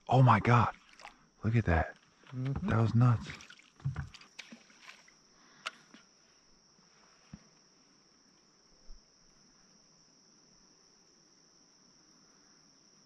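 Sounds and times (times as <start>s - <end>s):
high-pitched insect chorus: 0.0s - 13.0s
faint clicks: 5.6s - 6.0s.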